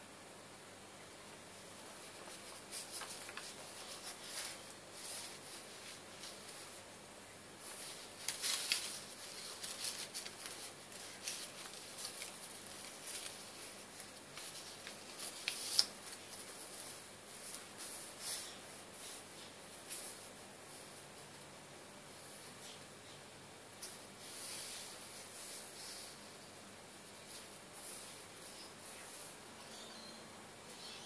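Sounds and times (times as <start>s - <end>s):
paper rustling and sliding: 1.9s - 6.8s, 7.6s - 21.0s.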